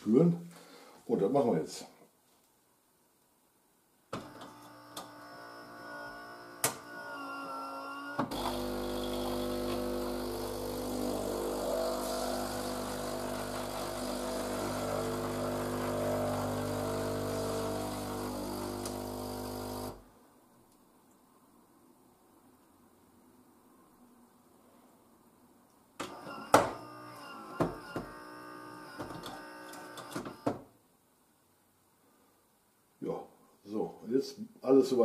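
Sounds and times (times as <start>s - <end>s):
pump humming: 8.2s - 20.0s.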